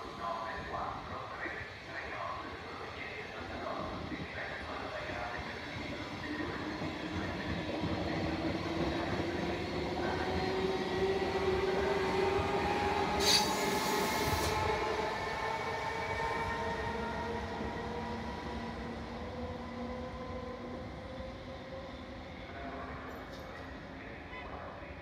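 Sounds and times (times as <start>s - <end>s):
train wheels rumbling on rails: 3.6s - 21.7s.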